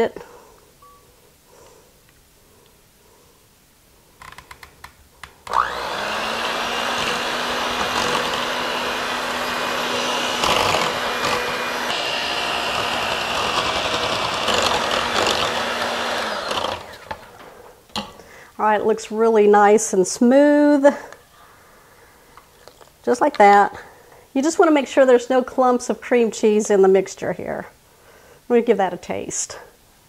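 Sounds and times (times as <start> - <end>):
electric hand mixer running: 5.5 - 17.5.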